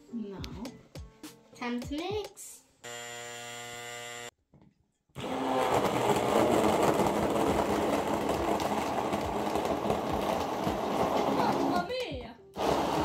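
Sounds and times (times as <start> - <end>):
immersion blender running: 2.8 - 4.3, 5.2 - 11.9, 12.6 - 13.0.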